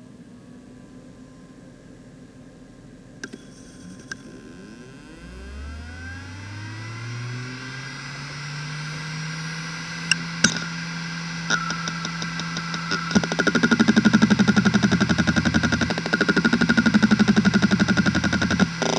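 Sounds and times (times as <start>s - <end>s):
hard drive spindle whine: 3.2s - 18.9s
hard drive clicks: 10.1s - 10.8s, 11.4s - 18.9s
hard drive seek ticks: 11.4s - 18.9s.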